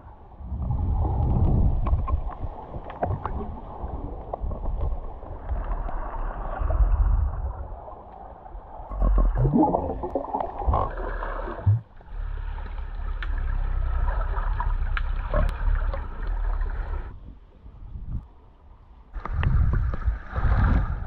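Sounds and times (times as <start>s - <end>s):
muffled underwater sloshing: 0.0s - 17.2s
steady low rumble: 8.8s - 18.3s
faint clicks: 12.6s - 13.5s.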